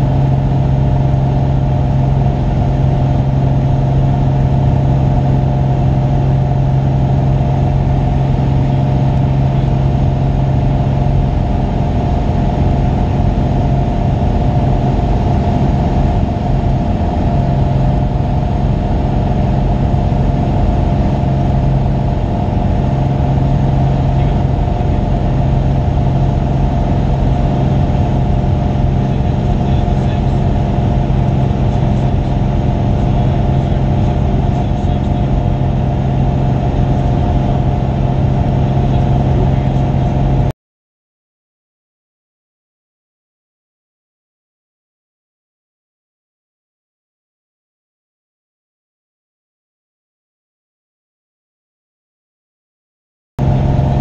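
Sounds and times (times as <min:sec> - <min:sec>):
light aircraft engine in flight: 0:00.0 - 0:40.5, 0:53.4 - 0:54.0.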